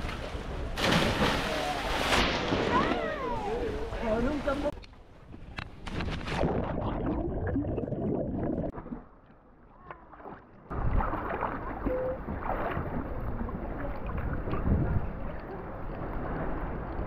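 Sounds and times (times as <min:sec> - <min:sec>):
water around a boat: 0:00.0 - 0:17.0
wind noise: 0:14.2 - 0:15.3.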